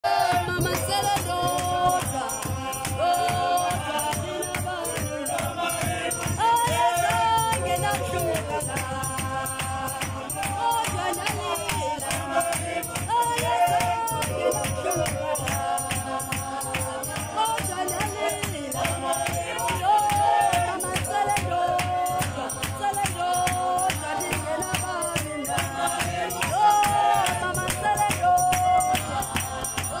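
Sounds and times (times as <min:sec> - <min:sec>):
fast percussion beat: 0:00.0 - 0:30.0
group of voices singing: 0:00.0 - 0:30.0.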